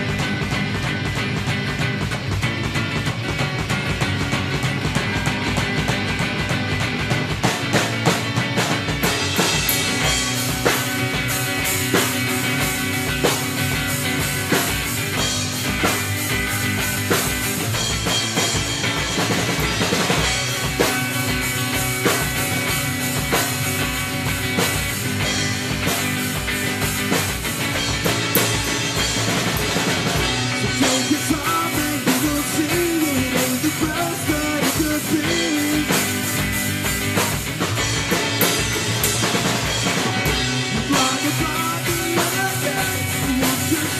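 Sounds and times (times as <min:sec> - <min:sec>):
rock music with drums and guitars: 0:00.0 - 0:43.9.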